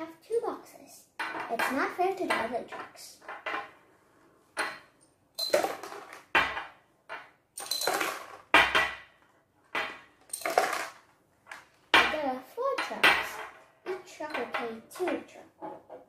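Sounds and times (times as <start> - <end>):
glass jars clinking on table: 4.6 - 9.0, 9.8 - 10.9.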